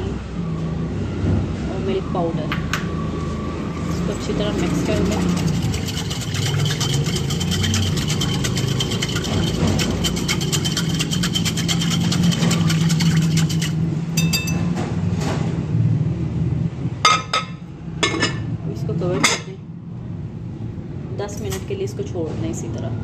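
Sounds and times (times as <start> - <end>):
steady low hum: 0.0 - 22.1
whisk clicking against glass bowl: 4.6 - 14.6.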